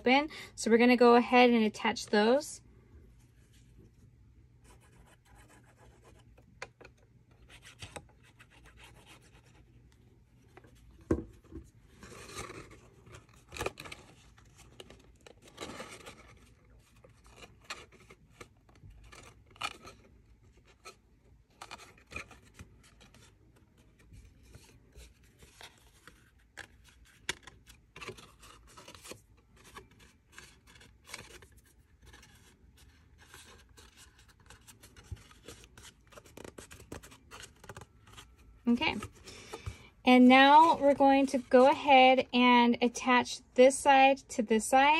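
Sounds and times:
paper rustling and scraping: 10.4s - 41.8s.

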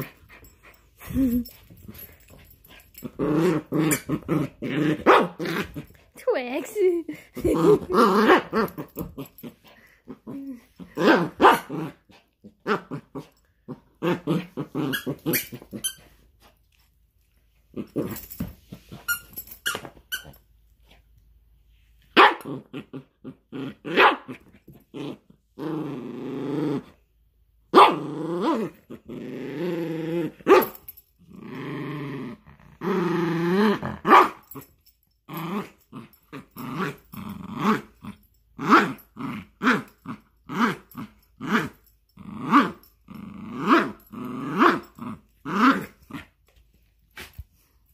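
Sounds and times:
small dog growling and snarling: 0.0s - 6.1s, 7.1s - 15.8s, 22.4s - 27.0s, 27.9s - 30.5s, 31.2s - 34.7s, 35.3s - 46.4s.

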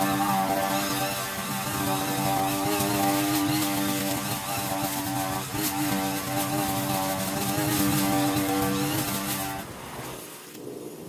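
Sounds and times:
small petrol engine running: 0.0s - 10.3s.

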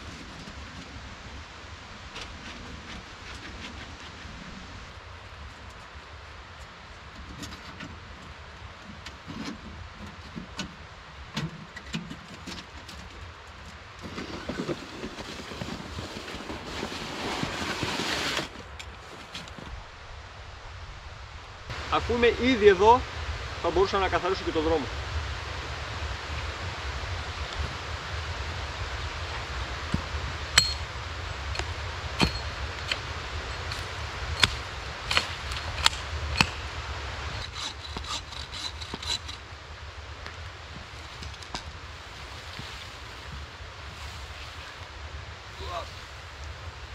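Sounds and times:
irregular rustling: 12.1s - 19.8s
wind-like rushing noise: 14.0s - 46.9s
branches clicking and rustling: 29.9s - 39.6s
axe chopping wood: 31.6s - 36.7s.

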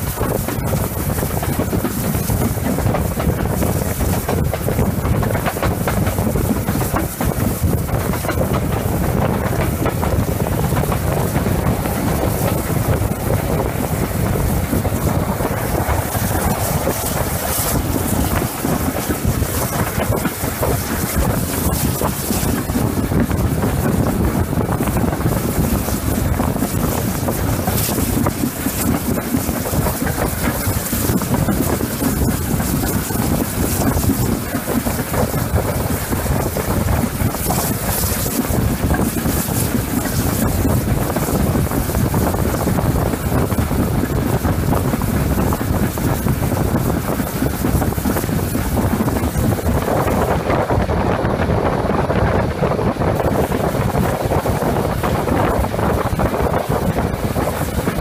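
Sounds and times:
locomotive running noise: 0.0s - 58.0s
wind buffeting microphone: 0.0s - 58.0s.

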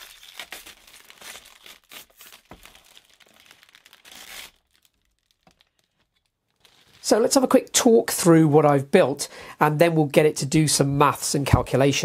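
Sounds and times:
plastic film peeling and crackling: 0.0s - 7.5s.

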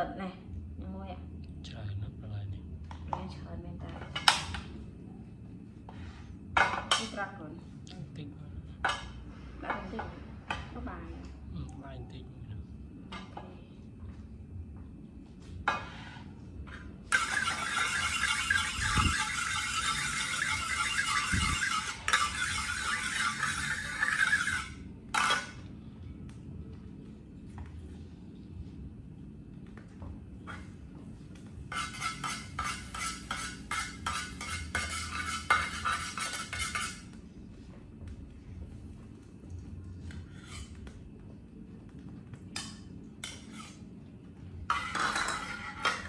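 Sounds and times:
metal spatula scraping a pan: 15.7s - 25.6s, 31.7s - 37.1s, 40.4s - 40.8s, 42.6s - 43.8s, 44.7s - 46.0s.

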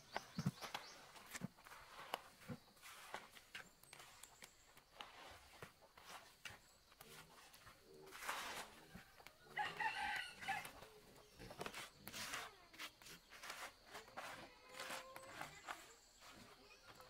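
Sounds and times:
rooster crowing: 9.5s - 10.8s.

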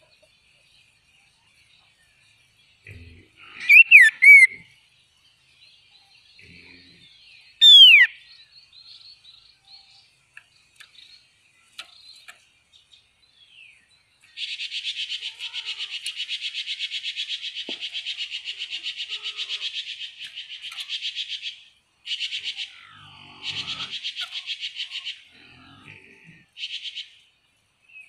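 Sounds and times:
bird whistling song: 3.6s - 4.6s, 7.6s - 8.3s
faint bird chips: 3.6s - 4.6s, 7.6s - 8.2s.

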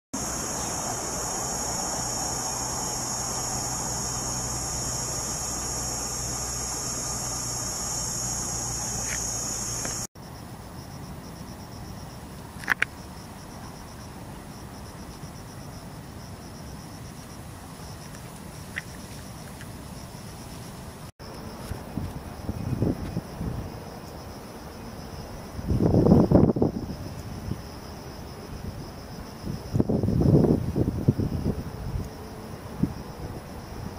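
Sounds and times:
short insect chirps: 0.2s - 15.8s, 16.7s - 23.4s
faint pulsing insect trill: 0.2s - 33.9s
insects droning high-pitched: 0.2s - 33.9s
wind rumbling on microphone: 21.7s - 23.9s, 25.4s - 27.7s, 28.5s - 33.9s.

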